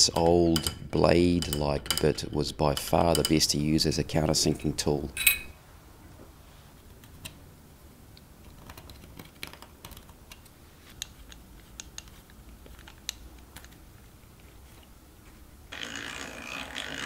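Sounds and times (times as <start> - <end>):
small metal hardware clicking: 5.2 - 5.5.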